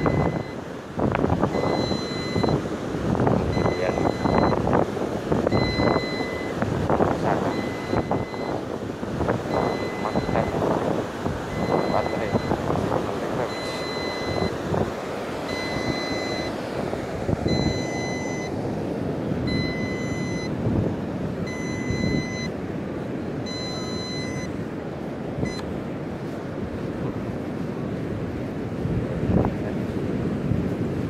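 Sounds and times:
high electronic warning beeps: 0.0 - 0.6, 1.4 - 2.6, 3.4 - 4.7, 5.5 - 8.8, 9.4 - 10.9, 11.5 - 12.7, 13.3 - 14.6, 15.4 - 16.6, 17.4 - 18.6, 19.4 - 20.5, 21.4 - 22.6, 23.4 - 24.6, 25.4 - 25.7
surf: 0.0 - 31.0
wind buffeting microphone: 0.0 - 31.0.

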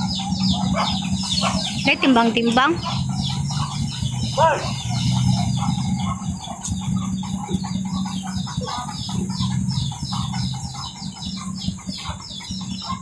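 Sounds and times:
birds chirping: 0.0 - 13.0
chickens clucking: 0.0 - 13.0.

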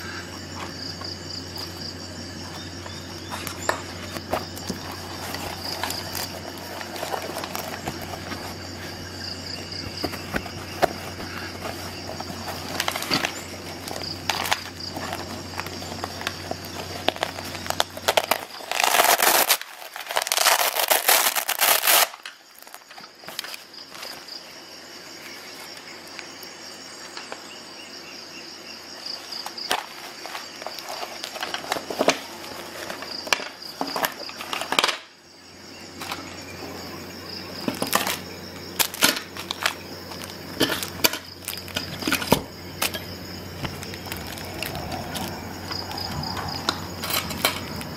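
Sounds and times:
nylon pouch rustling: 1.4 - 24.5, 29.1 - 34.8, 37.6 - 47.9
velcro tearing: 16.9 - 22.8.

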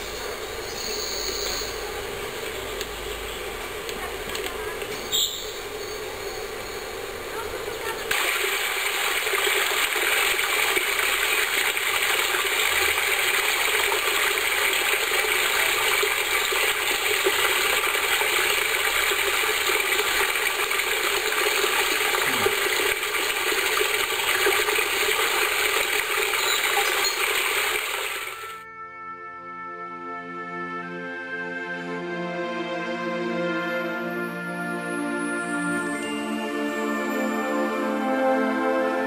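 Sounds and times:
stream flowing over rocks: 8.0 - 28.6.

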